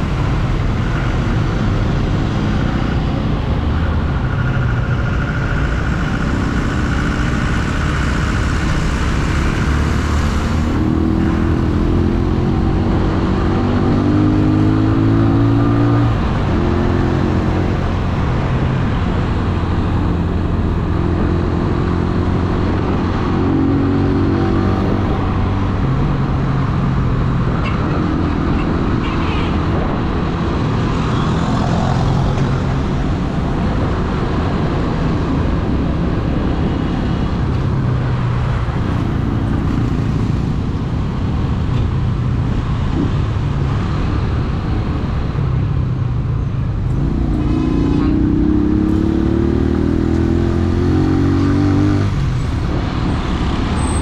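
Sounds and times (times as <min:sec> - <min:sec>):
motorcycle engine running: 0:00.0 - 0:10.1
wind and road noise: 0:00.0 - 0:54.0.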